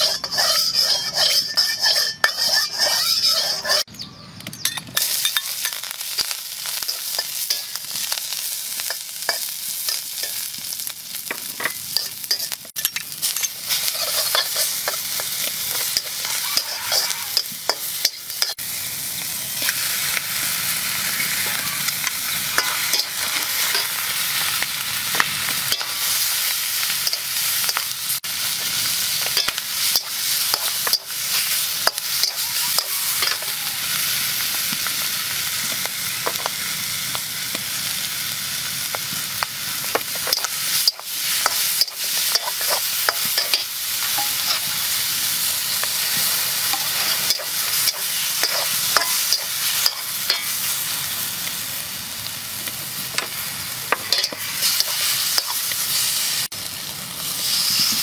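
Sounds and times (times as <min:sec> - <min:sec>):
metal spatula scraping pan: 0:00.0 - 0:03.9, 0:11.6 - 0:18.6, 0:29.2 - 0:33.6, 0:40.0 - 0:45.0, 0:45.7 - 0:50.6, 0:53.2 - 0:55.7
oil sizzling in a wok: 0:00.0 - 0:03.9, 0:04.9 - 0:58.0.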